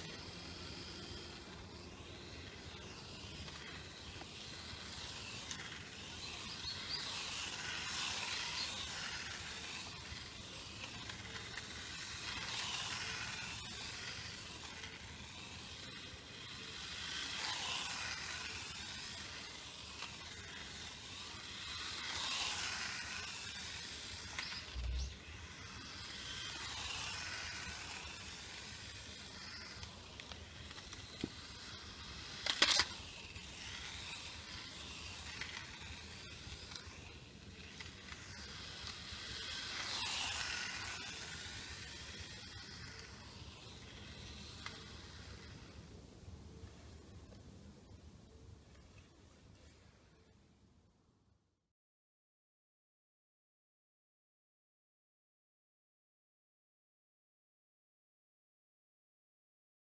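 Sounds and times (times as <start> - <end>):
toy car motor whining: 0.0 - 47.3.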